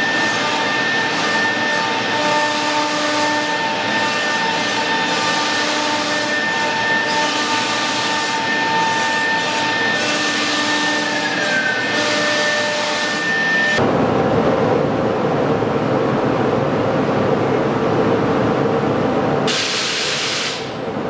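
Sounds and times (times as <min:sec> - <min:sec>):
router spindle whine: 0:00.0 - 0:13.8.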